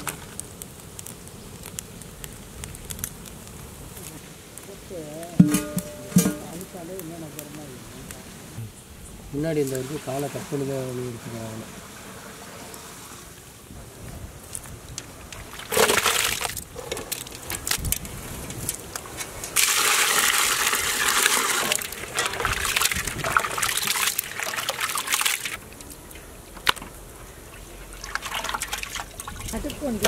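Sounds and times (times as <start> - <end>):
water splashing and sloshing: 14.7 - 30.0.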